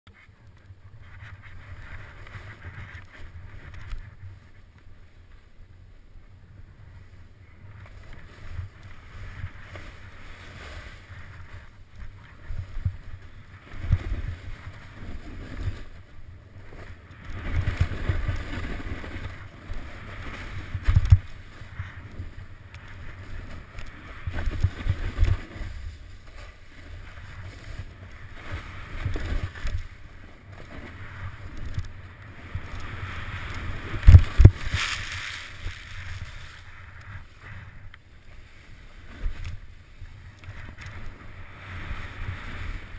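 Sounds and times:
snowboard hissing on snow: 0:32.9 - 0:37.7.

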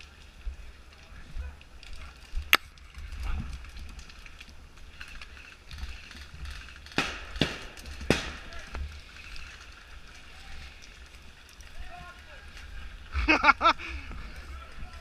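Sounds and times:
sharp stick cracks: 0:06.8 - 0:08.6.

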